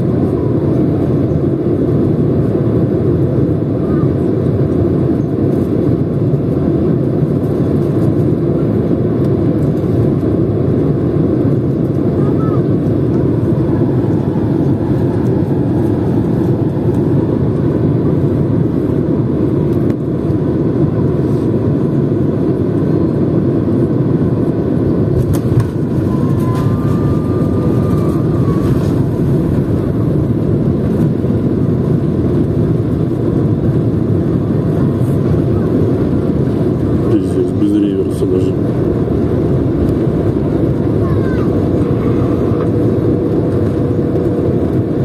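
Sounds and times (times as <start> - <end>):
airplane cabin rumble: 0.0 - 45.0.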